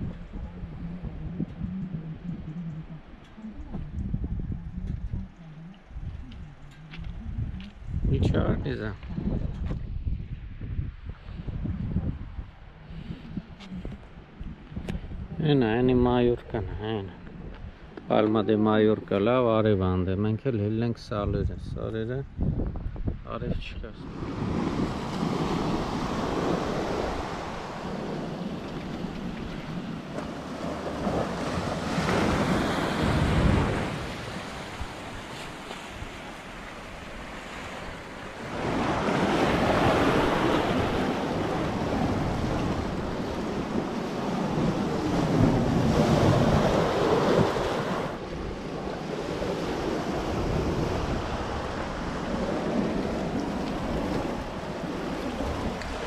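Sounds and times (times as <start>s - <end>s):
wind buffeting microphone: 0.0s - 20.2s, 20.8s - 56.0s
sea surf washing: 23.8s - 56.0s.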